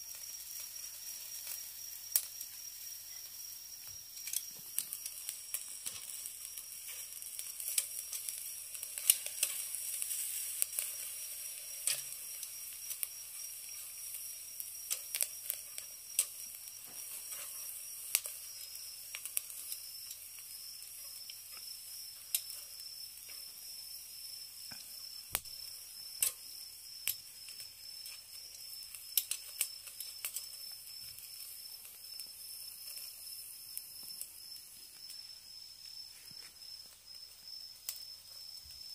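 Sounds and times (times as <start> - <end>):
meat sizzling on grill: 0.0 - 38.9
metal tongs clicking on grill: 4.2 - 13.1, 14.9 - 18.4, 22.3 - 22.6, 26.2 - 26.4, 29.2 - 30.5.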